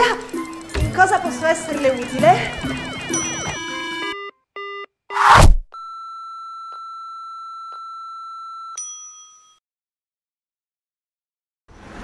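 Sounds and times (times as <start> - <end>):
steady high tone: 1.2 - 4.2
bell-like ding: 8.8 - 9.6.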